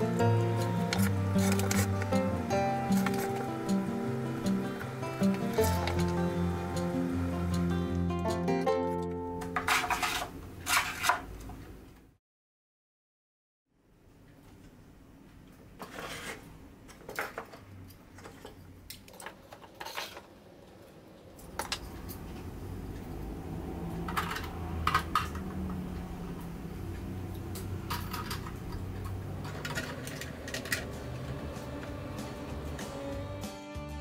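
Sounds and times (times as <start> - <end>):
low steady hum: 20.1 - 33.3.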